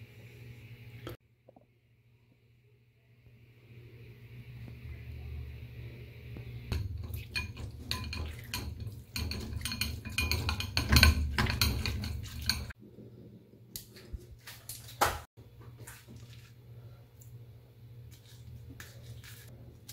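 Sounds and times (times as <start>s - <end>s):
metal spoon scraping a strainer: 6.7s - 12.8s.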